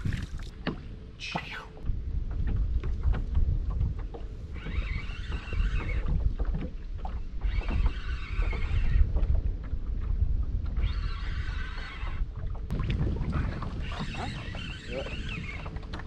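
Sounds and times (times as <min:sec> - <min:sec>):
wind rumbling on microphone: 0:00.0 - 0:16.0
fishing reel whirring: 0:04.5 - 0:06.1, 0:10.8 - 0:12.2, 0:13.8 - 0:16.0.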